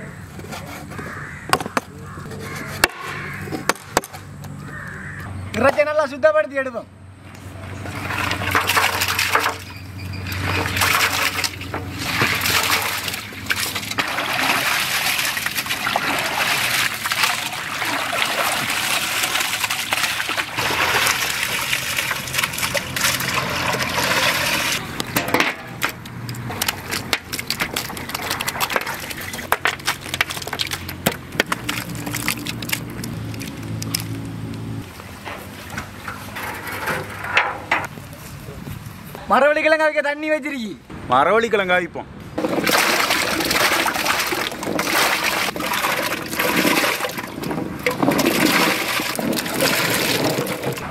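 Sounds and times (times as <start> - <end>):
water running and splashing: 7.8 - 24.8, 26.5 - 34.0, 42.4 - 50.9.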